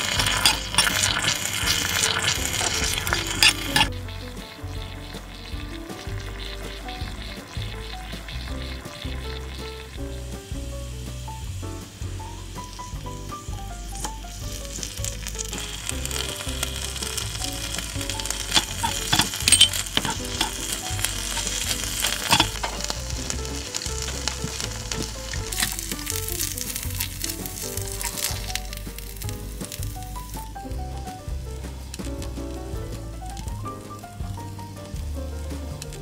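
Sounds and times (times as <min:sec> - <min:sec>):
metal spoon scraping a pan: 0:00.0 - 0:08.8, 0:15.5 - 0:28.6
food sizzling in a wok: 0:00.0 - 0:36.0
soft background music: 0:00.0 - 0:36.0.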